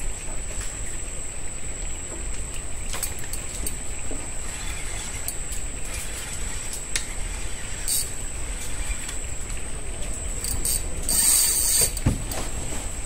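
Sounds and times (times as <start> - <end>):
high-pitched insect trill: 4.4 - 9.1, 10.2 - 12.0.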